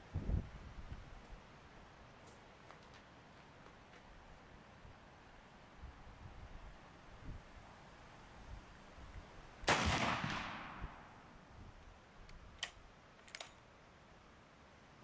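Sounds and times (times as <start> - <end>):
rifle shot: 9.7 - 11.2.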